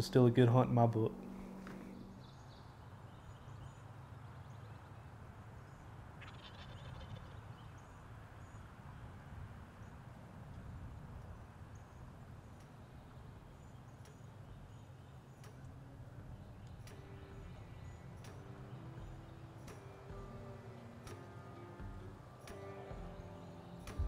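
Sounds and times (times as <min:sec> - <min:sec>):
faint songbird chirps: 0:00.0 - 0:24.0
low wind rumble: 0:00.0 - 0:24.0
distant turkey gobbling: 0:06.2 - 0:07.5.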